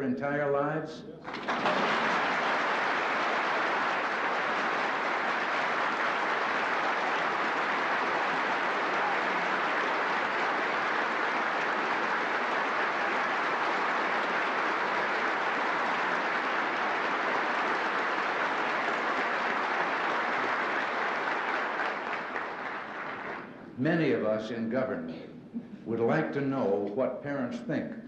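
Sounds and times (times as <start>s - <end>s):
audience applause: 1.2s - 23.6s.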